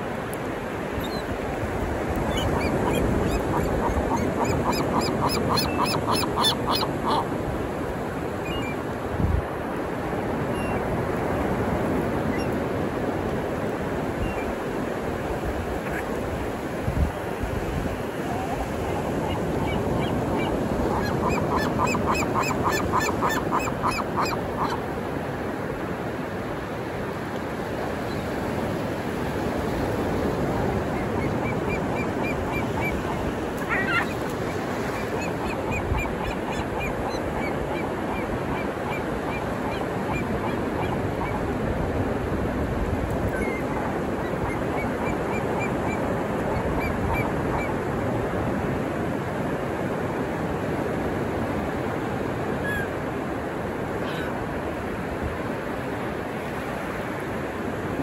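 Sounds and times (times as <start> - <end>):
ocean surf breaking: 6.6 - 44.9
gulls calling: 30.8 - 41.4.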